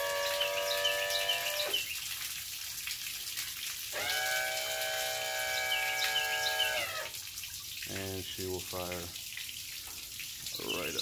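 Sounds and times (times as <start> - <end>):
hiss of spraying water: 0.0 - 7.2, 7.8 - 11.0
trim motor whining: 4.0 - 7.1.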